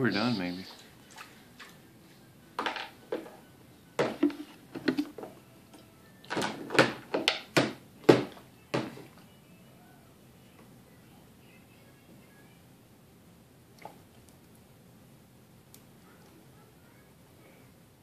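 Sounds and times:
plastic cup knocking on tray: 4.0s - 5.3s, 6.7s - 9.0s.

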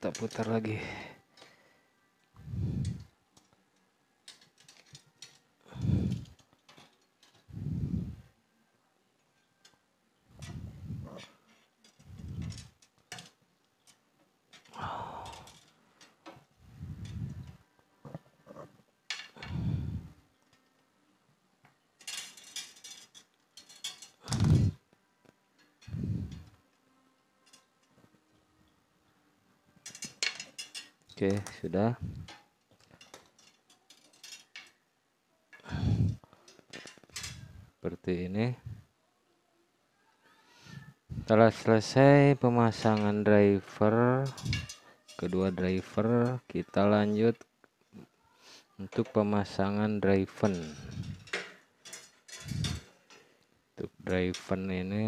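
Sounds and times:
wire scraping and rustling: 0.0s - 0.7s, 2.4s - 3.6s, 4.2s - 8.4s, 9.4s - 20.8s, 22.0s - 24.9s, 25.5s - 26.8s, 27.4s - 28.8s, 29.7s - 34.9s, 35.5s - 37.8s, 40.7s - 48.1s, 48.8s - 55.0s
wire and pliers clicking: 4.2s - 7.5s, 22.0s - 26.6s, 29.8s - 34.8s, 44.2s - 45.6s.

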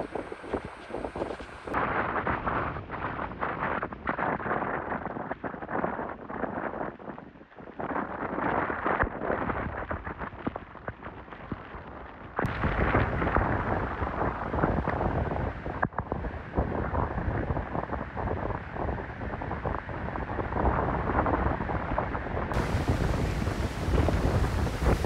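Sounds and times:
wind gusting through palm trees: 0.0s - 3.8s, 12.5s - 25.0s
wind buffeting microphone: 0.0s - 25.0s
heavy surf breaking: 22.6s - 25.0s.

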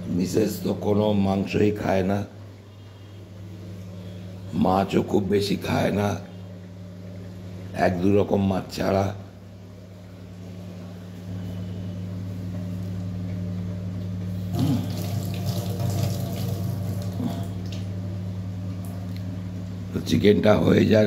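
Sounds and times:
low steady hum: 0.0s - 21.0s
running water from tap: 14.5s - 17.8s.

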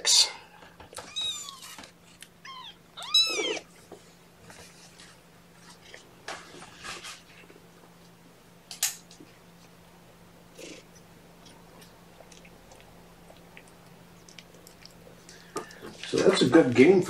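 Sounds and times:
kitten meowing: 1.0s - 1.8s, 2.4s - 3.7s.

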